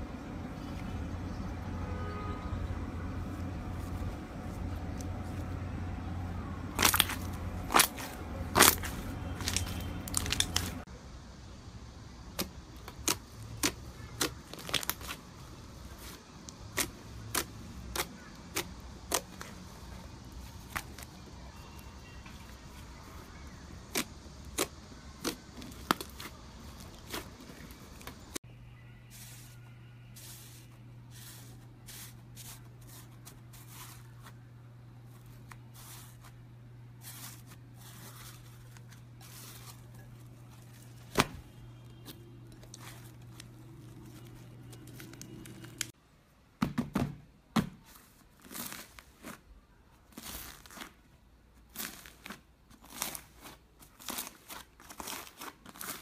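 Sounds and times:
crunchy slime crackling: 0:06.3 - 0:10.9, 0:12.3 - 0:28.4, 0:30.1 - 0:46.0, 0:48.0 - 0:56.0.

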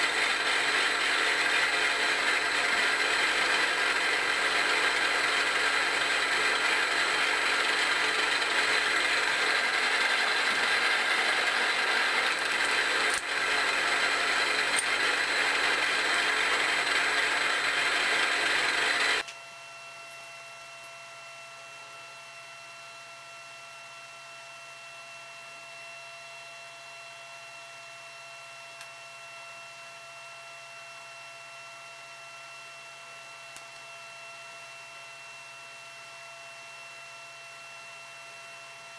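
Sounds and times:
milling machine whir with gear whine: 0:00.0 - 0:23.1.

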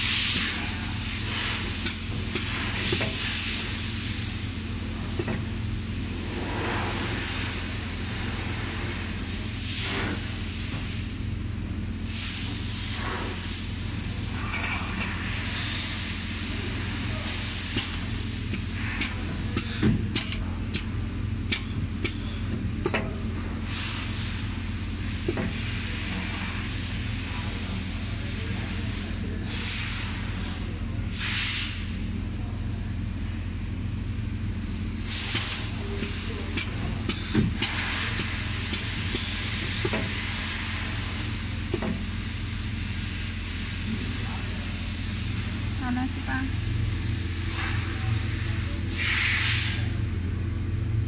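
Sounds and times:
machine humming and whining: 0:00.0 - 0:31.2, 0:31.8 - 0:51.0
sharp metallic clicks and knocks: 0:17.7 - 0:20.9, 0:21.5 - 0:22.2, 0:22.8 - 0:23.2.

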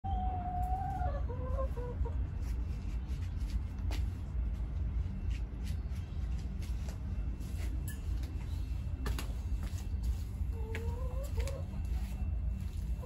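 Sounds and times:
chicken clucking: 0:00.0 - 0:02.5, 0:10.5 - 0:12.3.

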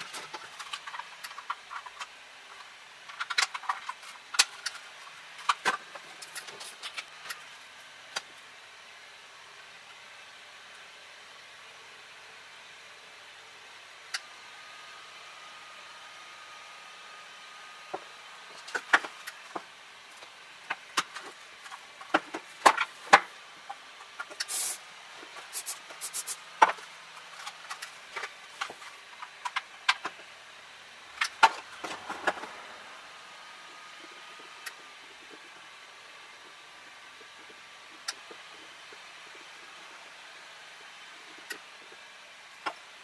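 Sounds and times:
plastic parts clicking and knocking: 0:03.1 - 0:07.4, 0:17.9 - 0:24.6, 0:26.6 - 0:30.3, 0:31.2 - 0:32.6
short hiss: 0:24.4 - 0:24.9, 0:25.5 - 0:26.4.

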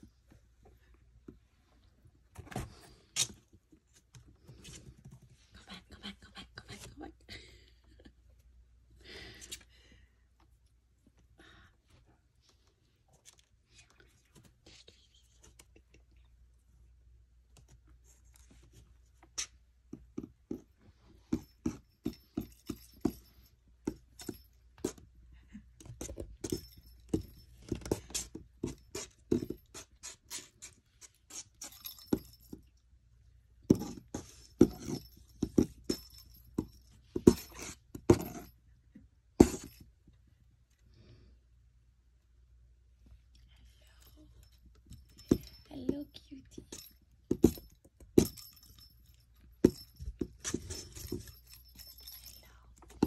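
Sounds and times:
toy ball jingle: 0:21.2 - 0:25.0, 0:25.8 - 0:30.4, 0:31.3 - 0:32.7, 0:33.7 - 0:38.5, 0:44.0 - 0:53.0.

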